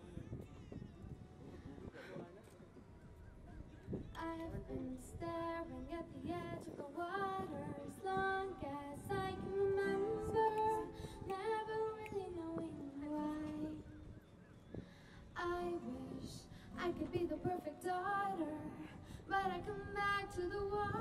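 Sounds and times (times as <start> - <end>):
girl singing into a microphone: 4.2 - 13.9, 15.3 - 21.0.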